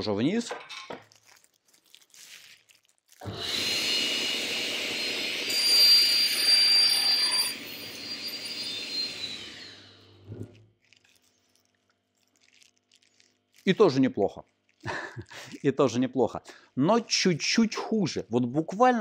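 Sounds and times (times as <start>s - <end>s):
saw blade cutting board: 3.2s - 10.5s
table saw whining: 3.2s - 10.6s.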